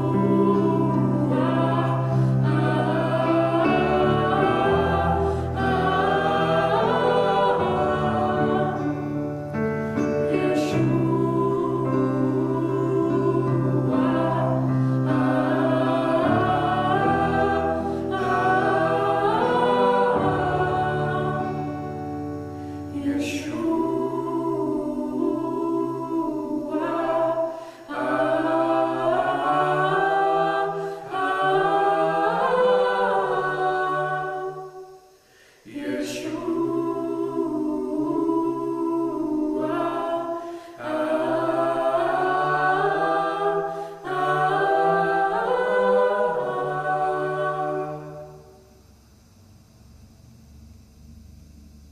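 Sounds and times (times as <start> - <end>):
acoustic guitar: 0.0 - 24.0
stage piano: 0.0 - 35.1
woman and man singing: 10.3 - 21.9, 22.9 - 48.2.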